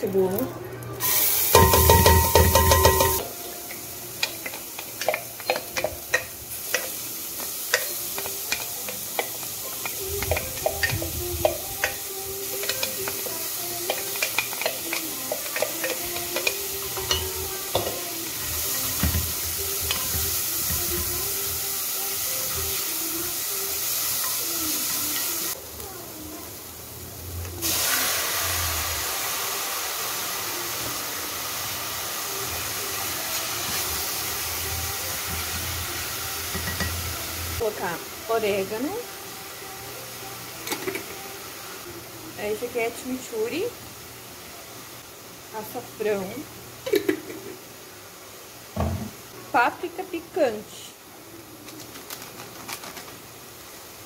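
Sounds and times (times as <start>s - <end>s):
chicken sizzling: 0.0s - 54.0s
onion sizzling in a pot: 0.0s - 54.0s.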